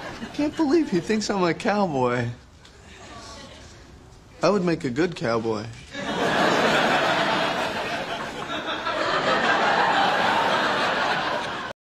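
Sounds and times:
audience laughing: 0:00.0 - 0:01.1, 0:05.9 - 0:11.8.

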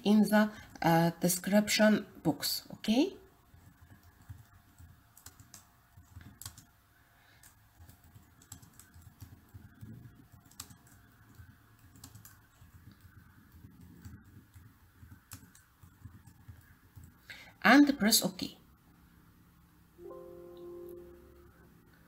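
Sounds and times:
faint keyboard typing: 0:00.4 - 0:00.9, 0:03.3 - 0:17.6.

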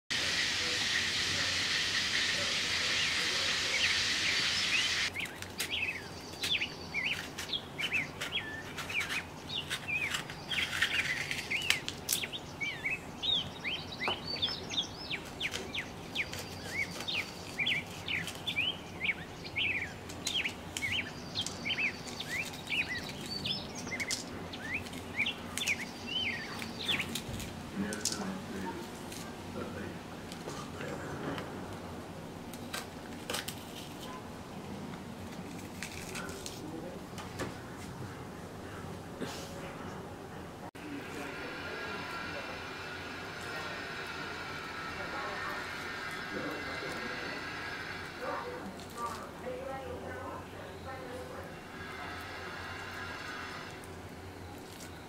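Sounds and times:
steady hiss: 0:00.1 - 0:06.7, 0:40.7 - 0:55.0
small birds chirping: 0:00.6 - 0:27.6.

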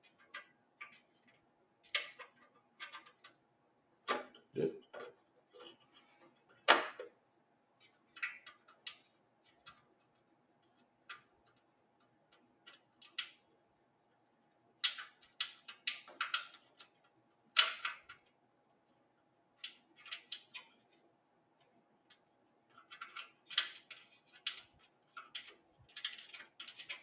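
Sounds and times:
small metallic clicks and rattles: 0:00.0 - 0:03.4, 0:07.8 - 0:13.5, 0:14.8 - 0:18.4, 0:19.6 - 0:27.0.

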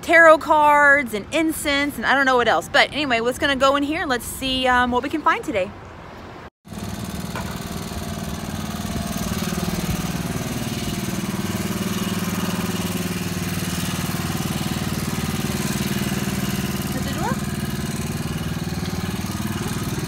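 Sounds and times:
engine running with low hum: 0:06.7 - 0:20.0.

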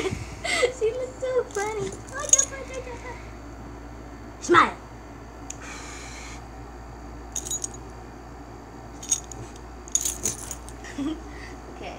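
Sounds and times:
dog collar tags jingling: 0:01.5 - 0:02.7, 0:07.4 - 0:07.8, 0:09.0 - 0:10.8.

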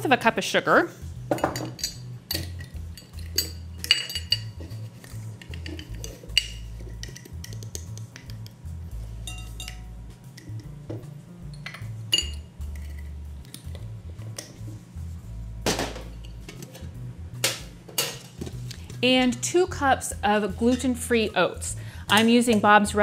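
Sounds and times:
metal cup tapping glass: 0:09.3 - 0:09.9.

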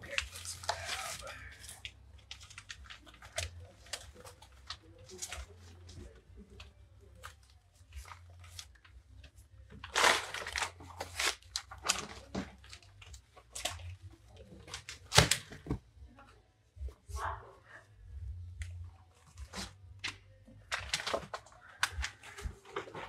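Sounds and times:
plastic packaging crinkling: 0:09.7 - 0:14.0.

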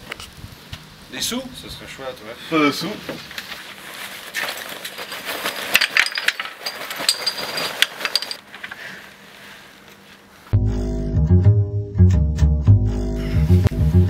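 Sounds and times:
light clinks: 0:05.8 - 0:08.4.

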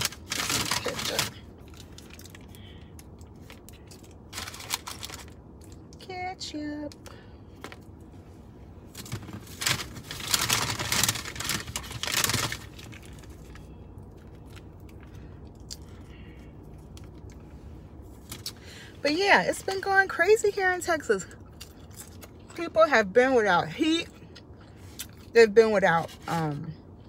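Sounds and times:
paper wrapper crinkling: 0:00.0 - 0:02.5, 0:03.4 - 0:05.8, 0:08.9 - 0:14.8.

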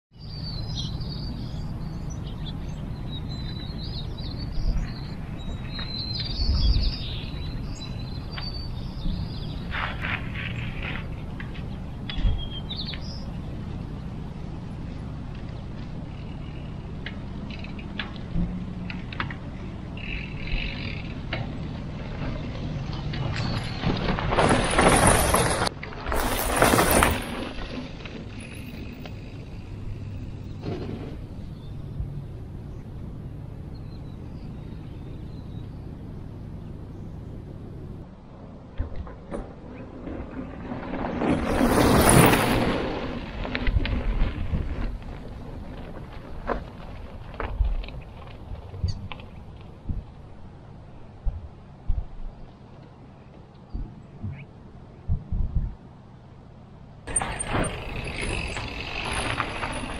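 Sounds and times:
small birds chirping: 0:00.1 - 0:14.2, 0:19.6 - 0:24.0
mountain bike tyres on dirt: 0:00.2 - 0:55.8, 0:57.0 - 0:59.9
wind rumbling on microphone: 0:00.2 - 0:59.9.

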